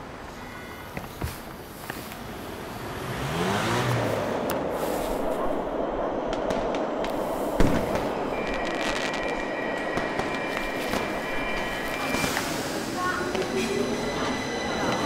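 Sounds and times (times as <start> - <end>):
steady traffic rush: 0.0 - 15.0
vehicle engine accelerating: 2.7 - 5.2
steady high tone: 8.0 - 15.0.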